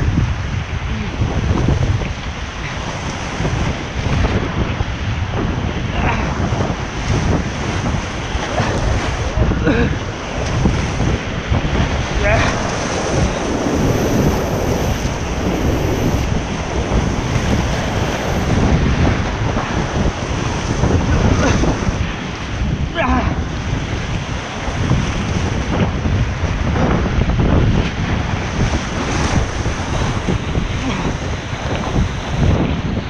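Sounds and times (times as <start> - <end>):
wind buffeting microphone: 0.0 - 33.0
whitewater rapids rushing: 7.8 - 22.0.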